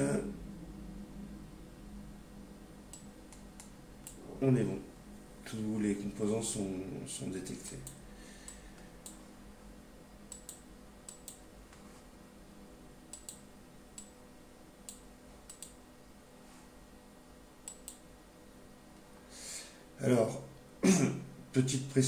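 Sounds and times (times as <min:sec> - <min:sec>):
faint steady hum: 0:00.0 - 0:22.0
computer mouse clicks: 0:10.3 - 0:11.8, 0:13.1 - 0:13.4, 0:14.0 - 0:14.2, 0:14.8 - 0:15.8, 0:17.6 - 0:18.0.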